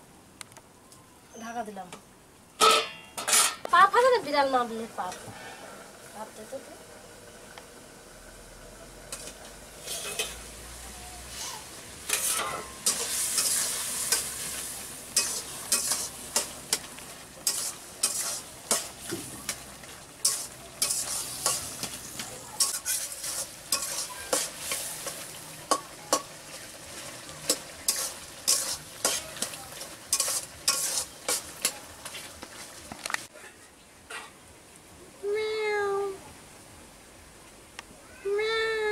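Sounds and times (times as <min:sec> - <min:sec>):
metal spatula scraping a wok: 0:02.6 - 0:03.7, 0:09.1 - 0:10.6, 0:11.3 - 0:19.6, 0:20.2 - 0:32.3
vegetables sizzling in oil: 0:03.7 - 0:33.3.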